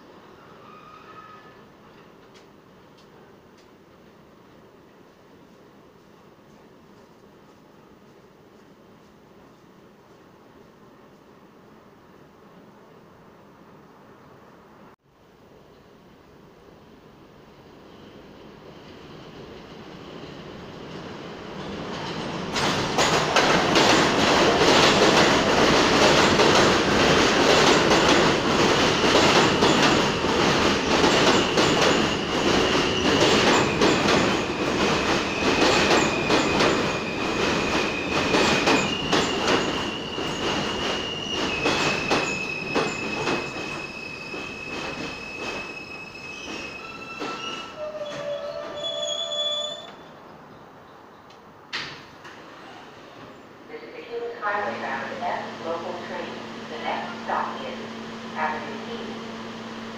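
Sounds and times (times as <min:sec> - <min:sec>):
wheel squeal: 0:00.4 - 0:01.6, 0:38.0 - 0:50.1.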